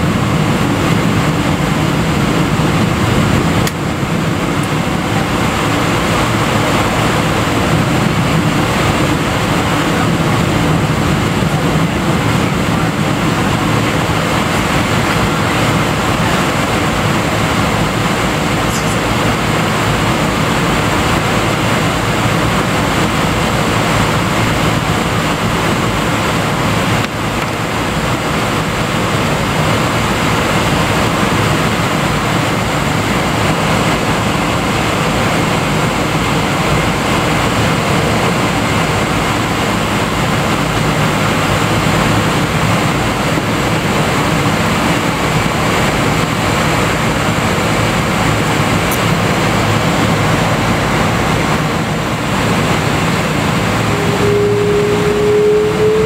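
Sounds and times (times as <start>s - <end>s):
faint high whine: 0.0s - 27.0s, 48.0s - 56.0s
airplane cabin noise while taxiing: 0.0s - 56.0s.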